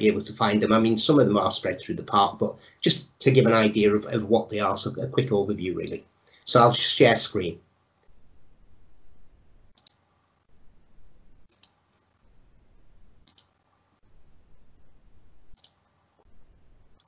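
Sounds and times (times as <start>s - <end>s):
computer mouse clicking: 9.7s - 10.0s, 11.4s - 11.8s, 13.2s - 13.6s, 15.5s - 15.9s.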